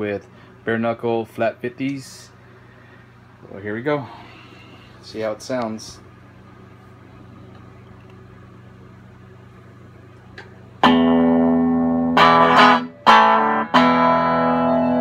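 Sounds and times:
amplifier hum: 0.0s - 15.0s
electric guitar chords strummed: 10.8s - 15.0s.

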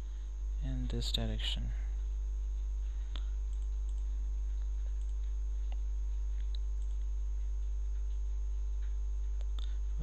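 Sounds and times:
electrical mains hum: 0.0s - 10.0s
computer mouse clicks: 3.2s - 4.1s, 6.4s - 7.1s.

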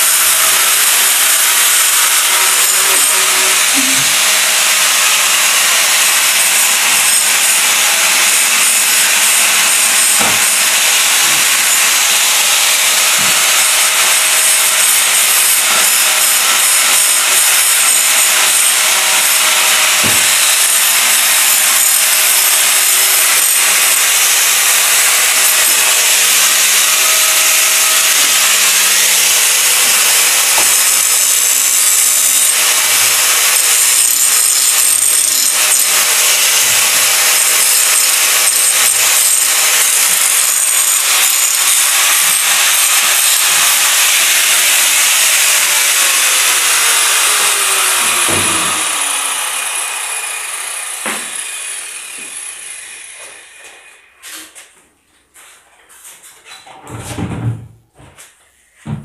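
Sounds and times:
power tool hissing: 0.0s - 54.2s.

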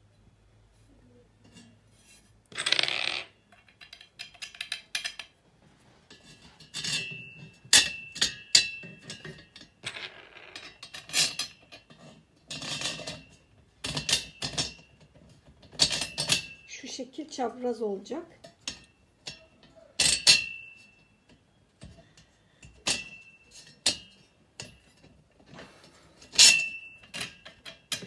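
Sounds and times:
metal hardware clicking and clinking: 2.5s - 5.4s, 6.1s - 16.8s, 18.4s - 28.0s
hand tool scraping metal: 25.5s - 28.0s.

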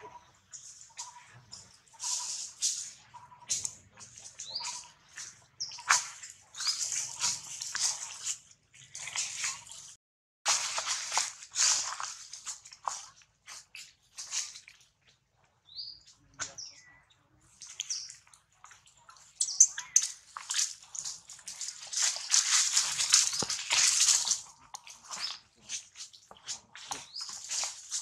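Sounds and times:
dry leaves crackling and rustling: 0.5s - 9.9s, 10.5s - 14.6s, 19.8s - 28.0s.

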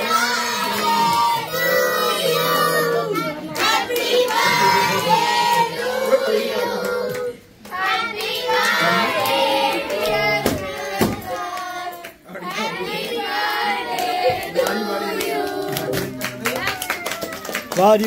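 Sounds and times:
children clapping: 13.9s - 18.0s.

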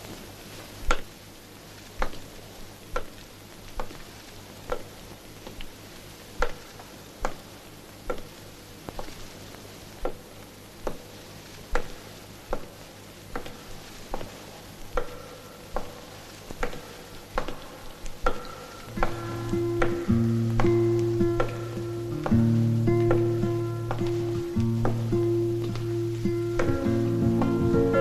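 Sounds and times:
faint steady hiss: 0.0s - 28.0s
footsteps on tiled floor: 13.4s - 28.0s.

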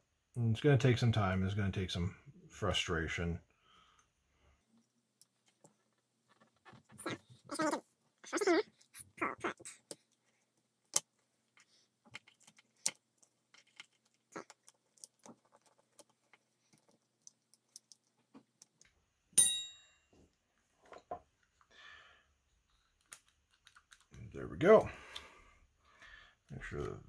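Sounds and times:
small parts clicking and tapping: 9.6s - 19.0s, 22.7s - 24.2s
loud metallic clink: 19.4s - 20.0s.

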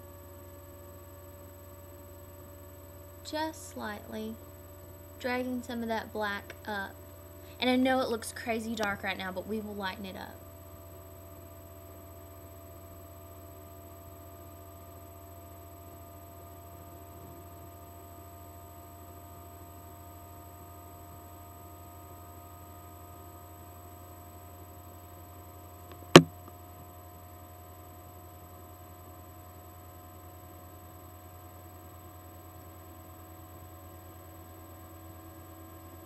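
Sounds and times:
low electrical hum: 0.0s - 36.0s
sharp click: 25.9s - 26.4s.

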